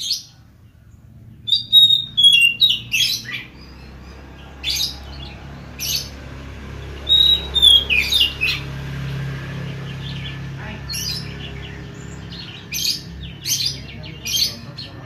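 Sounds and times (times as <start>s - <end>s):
songbird singing whistled notes: 0.0s - 6.2s, 6.8s - 8.8s.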